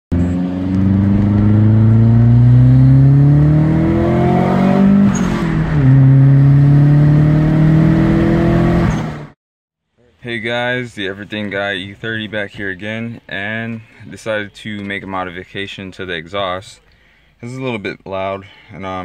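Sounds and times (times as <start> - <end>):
car engine accelerating hard: 0.1 - 9.4.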